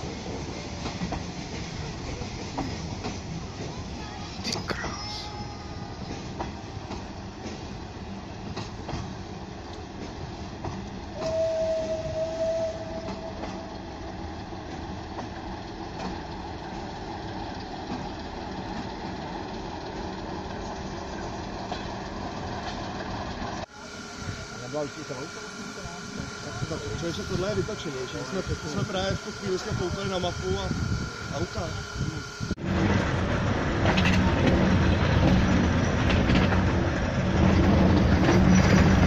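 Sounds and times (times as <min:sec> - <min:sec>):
diesel locomotive: 0:00.0 - 0:39.0
railway coaches rolling past: 0:00.0 - 0:39.0
wheels clicking over rail joints: 0:06.0 - 0:23.7, 0:32.7 - 0:39.0.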